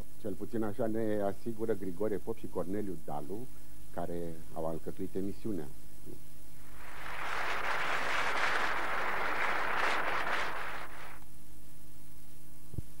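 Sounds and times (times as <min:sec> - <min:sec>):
burst of rushing noise: 0:06.6 - 0:11.2.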